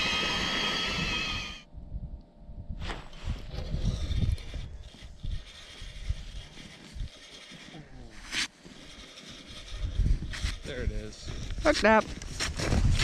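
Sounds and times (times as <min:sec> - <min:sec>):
fishing reel whirring: 0:00.0 - 0:01.7, 0:03.4 - 0:11.6
wind buffeting microphone: 0:00.0 - 0:07.2, 0:09.5 - 0:13.0.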